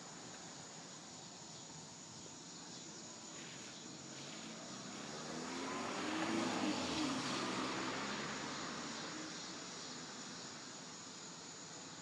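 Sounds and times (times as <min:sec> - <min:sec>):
car driving past: 0:04.2 - 0:10.2.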